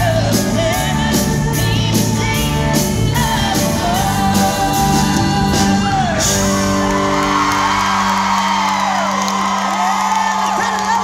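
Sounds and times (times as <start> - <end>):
woman singing: 0.0 - 6.5
country band playing: 0.0 - 11.0.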